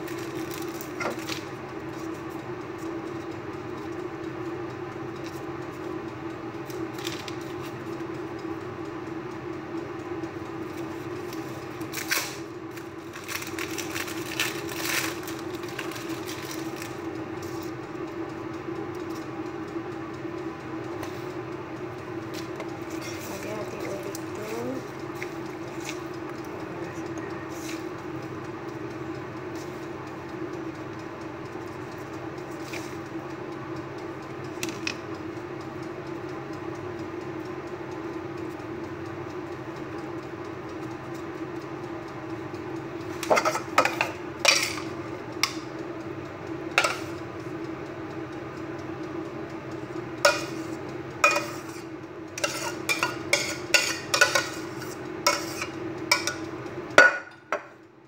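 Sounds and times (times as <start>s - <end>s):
steady hum: 0.0s - 58.0s
spoon clinking on metal pot: 51.2s - 51.7s, 52.4s - 54.7s, 55.3s - 56.4s, 57.0s - 57.6s.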